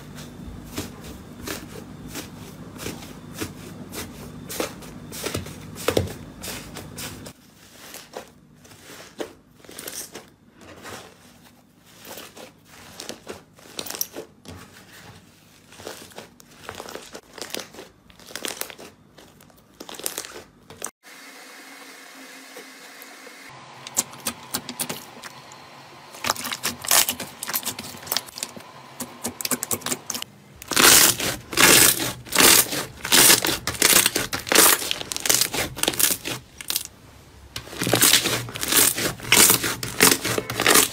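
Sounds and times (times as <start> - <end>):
slime squishing and crackling: 15.5 - 20.9, 26.2 - 36.9, 37.6 - 40.9.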